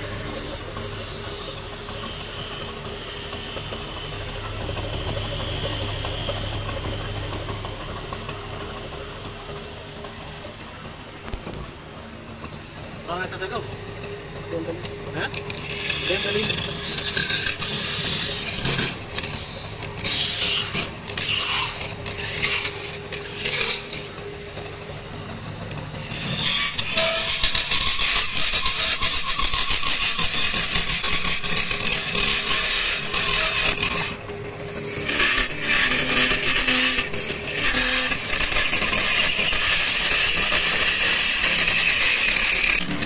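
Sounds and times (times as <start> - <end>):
lathe chisel scraping wood: 15.4 - 24.2, 26.0 - 43.0.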